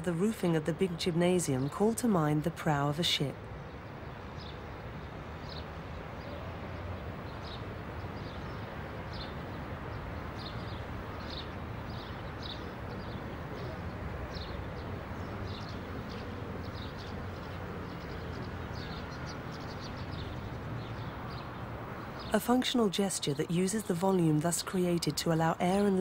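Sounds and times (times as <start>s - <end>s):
distant traffic hum: 0.0s - 26.0s
small birds chirping: 3.6s - 22.6s.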